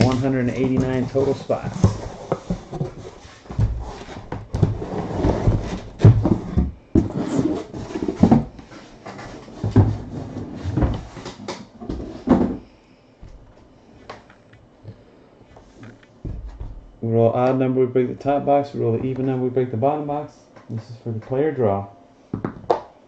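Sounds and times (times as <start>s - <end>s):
boxes sliding out of cardboard case: 1.1s - 11.4s.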